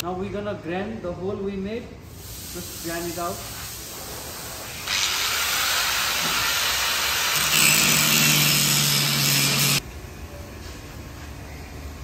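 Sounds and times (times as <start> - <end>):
angle grinder grinding steel: 6.1 - 9.8.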